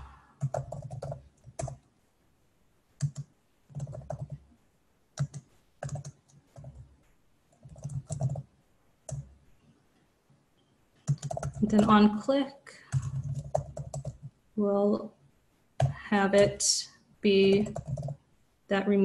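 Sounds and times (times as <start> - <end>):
typing on computer keyboard: 0.4 - 1.9, 3.0 - 4.5, 5.2 - 6.9, 7.5 - 8.5, 9.1 - 9.3, 11.0 - 11.9, 12.8 - 14.3, 17.5 - 18.2.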